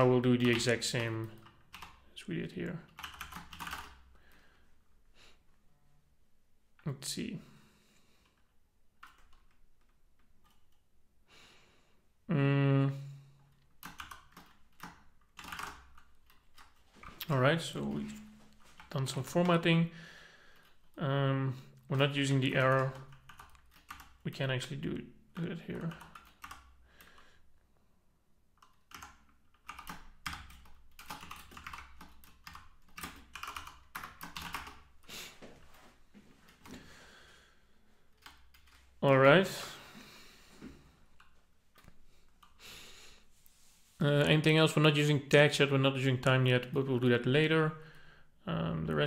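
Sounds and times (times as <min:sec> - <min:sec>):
typing on a keyboard: 0:00.0 - 0:02.1, 0:02.9 - 0:04.1, 0:09.0 - 0:10.8, 0:13.8 - 0:16.9, 0:22.5 - 0:24.2, 0:25.8 - 0:27.1, 0:28.6 - 0:34.9, 0:38.2 - 0:38.9
man humming: 0:12.3 - 0:13.2.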